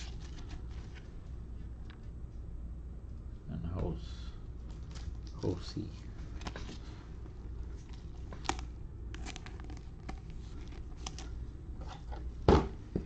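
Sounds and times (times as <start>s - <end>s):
trading cards rustling and clicking: 0.0s - 1.1s, 7.8s - 12.1s.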